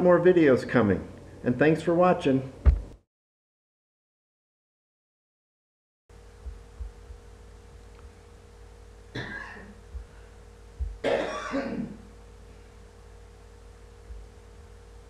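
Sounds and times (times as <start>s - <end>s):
faint steady hum: 0.0s - 3.0s, 6.1s - 15.0s
person coughing: 9.2s - 9.8s, 11.0s - 12.0s.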